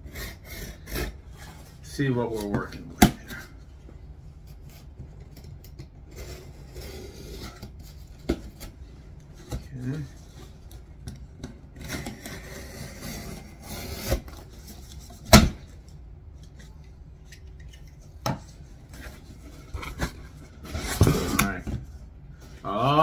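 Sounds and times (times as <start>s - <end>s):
cardboard rubbing and rustling: 18.5s - 22.0s.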